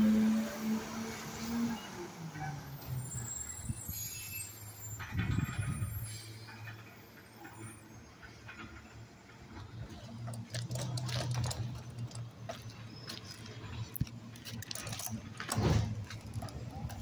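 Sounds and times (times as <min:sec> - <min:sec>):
diesel engine humming: 0:08.0 - 0:17.0
sharp clicks and knocks: 0:09.5 - 0:17.0.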